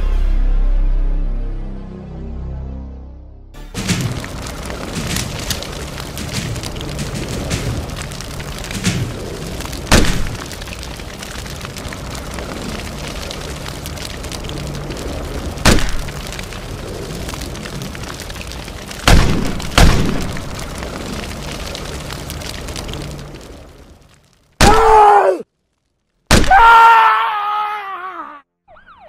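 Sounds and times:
loud blasts: 0:03.6 - 0:23.6
flames hissing and crackling: 0:03.6 - 0:27.0.

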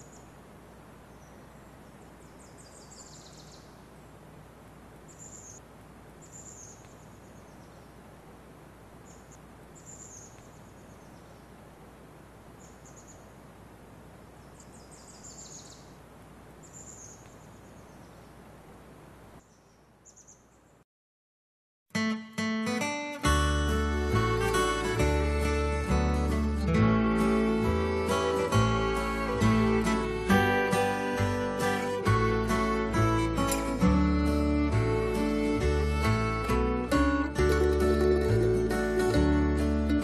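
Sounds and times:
birds chirping: 0:00.0 - 0:08.3, 0:08.9 - 0:20.8
faint steady hiss: 0:00.0 - 0:20.8, 0:22.6 - 0:40.0.

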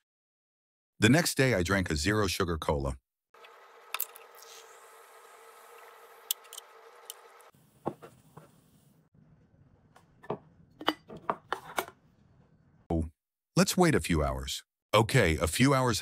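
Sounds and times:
cola pouring and fizzing: 0:03.4 - 0:07.5.

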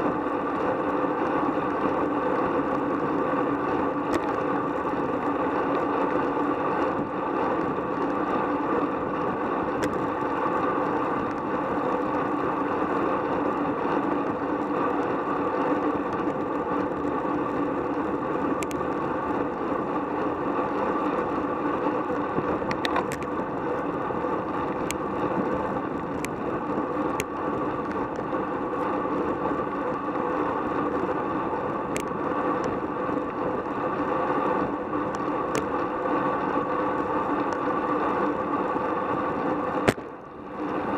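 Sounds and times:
road and tyre noise: 0:00.0 - 0:40.9
faint clicks: 0:18.6 - 0:18.9, 0:31.9 - 0:32.8.

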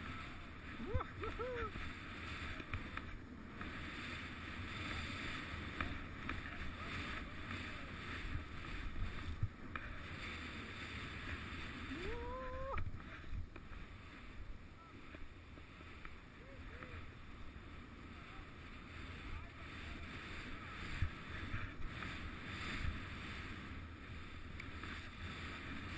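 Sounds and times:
wind on microphone: 0:00.0 - 0:14.7
skis swishing through snow: 0:00.0 - 0:25.9
person shouting: 0:12.0 - 0:12.8.

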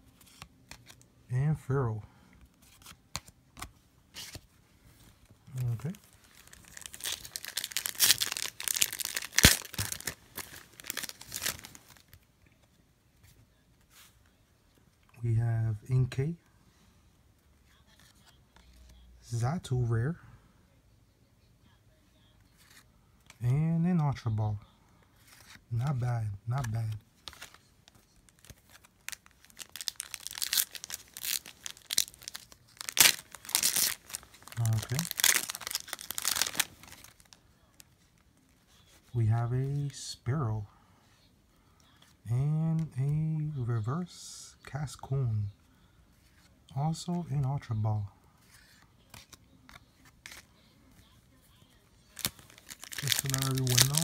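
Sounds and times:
foil wrapper crinkling: 0:05.5 - 0:12.2, 0:27.2 - 0:37.8, 0:52.0 - 0:54.0
foil wrapper snapping: 0:06.4 - 0:11.7, 0:29.1 - 0:37.3, 0:52.2 - 0:54.0.

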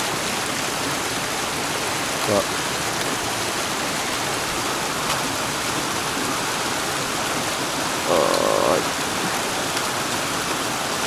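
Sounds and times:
stream running over stones: 0:00.0 - 0:11.0.

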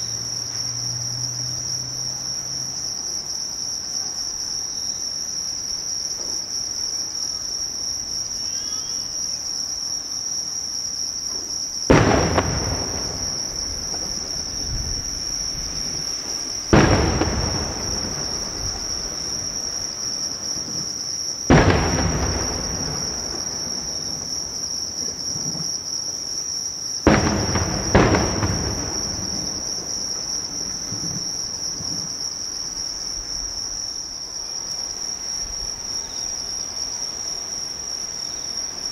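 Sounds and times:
crickets chirring: 0:00.0 - 0:38.9
fireworks booming with echo: 0:11.3 - 0:33.3.

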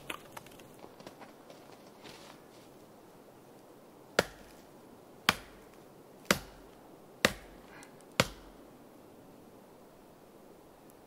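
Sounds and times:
knife chopping wood: 0:04.2 - 0:04.6, 0:05.3 - 0:08.6.

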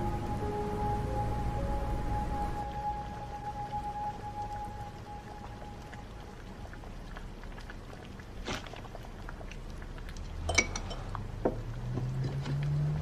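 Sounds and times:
glass bottles and tableware clinking: 0:10.5 - 0:11.1.

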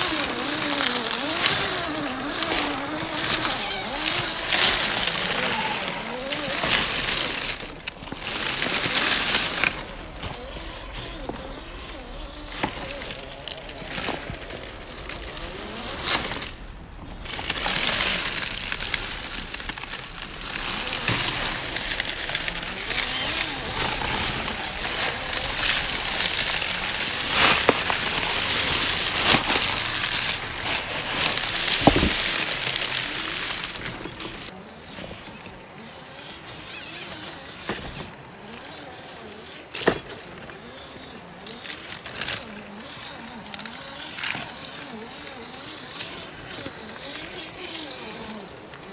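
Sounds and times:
dry leaves crackling: 0:00.0 - 0:48.9
small stones clicking: 0:17.2 - 0:34.5.

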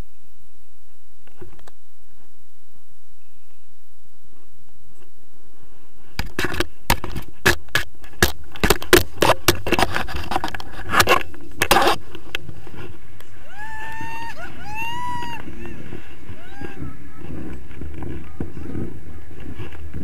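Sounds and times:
wind buffeting microphone: 0:04.3 - 0:20.0.

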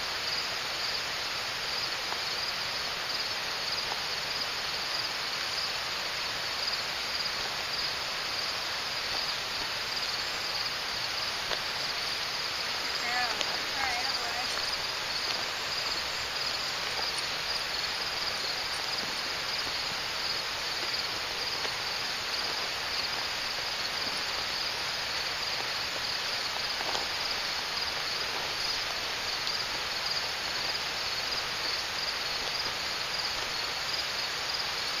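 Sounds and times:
constant background hiss: 0:00.0 - 0:35.0
insects trilling: 0:00.0 - 0:35.0.

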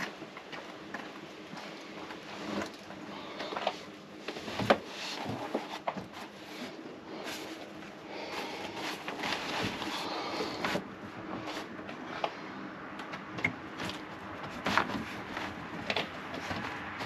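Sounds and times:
padded cover rustling: 0:00.0 - 0:12.2.

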